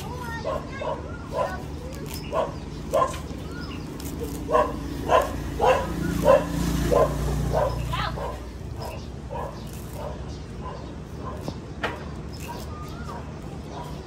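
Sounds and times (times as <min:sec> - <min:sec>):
dog barking: 0:00.4 - 0:01.7, 0:02.3 - 0:03.3, 0:04.5 - 0:11.6, 0:12.5 - 0:14.0.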